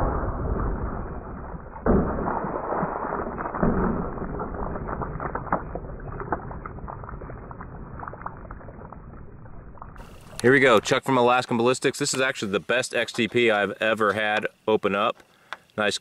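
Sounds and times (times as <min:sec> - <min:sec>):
water splashing and dripping: 0:00.0 - 0:11.0.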